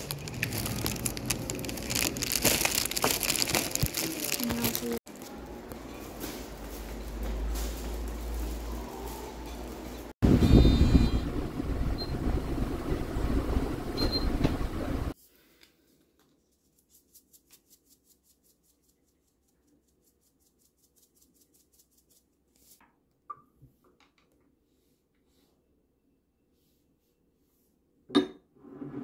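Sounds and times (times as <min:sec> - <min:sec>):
loud steady rumbling: 0:10.2 - 0:15.1.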